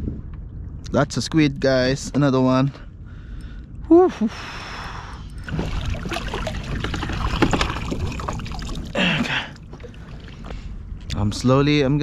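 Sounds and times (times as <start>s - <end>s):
water splashing and dripping: 5.4s - 10.7s.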